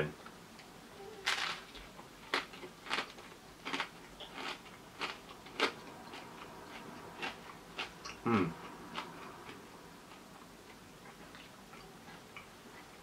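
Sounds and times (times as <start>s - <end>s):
crisps crunching as chewed: 1.2s - 12.5s.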